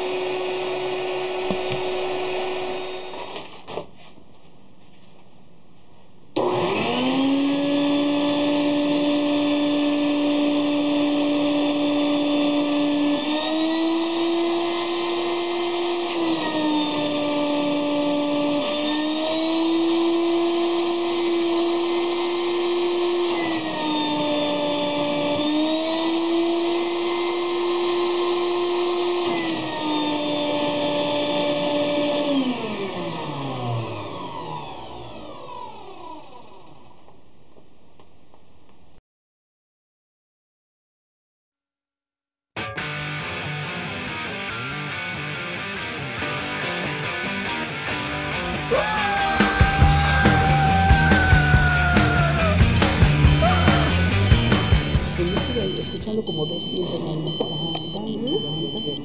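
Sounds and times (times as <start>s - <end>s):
electric blower motor whining: 0.0s - 3.8s, 6.4s - 37.2s, 48.0s - 56.5s.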